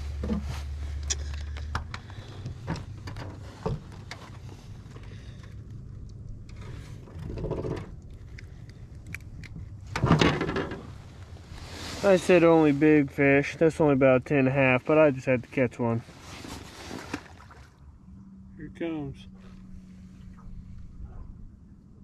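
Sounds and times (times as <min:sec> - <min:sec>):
low hum: 0:00.0 - 0:14.8, 0:16.0 - 0:22.0
fishing tackle clicks and knocks: 0:01.0 - 0:10.8.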